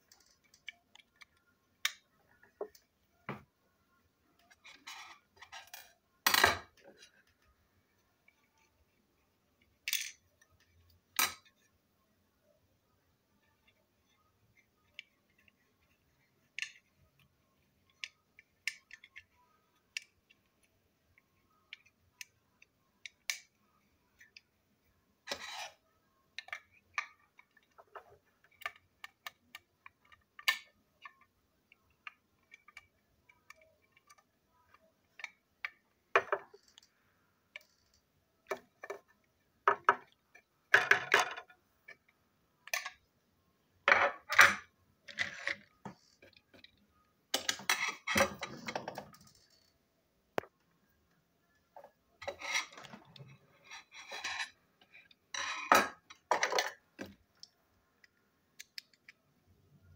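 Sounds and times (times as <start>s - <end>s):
plastic toy clicking and rattling: 0.0s - 2.8s, 14.8s - 20.6s, 26.4s - 36.9s.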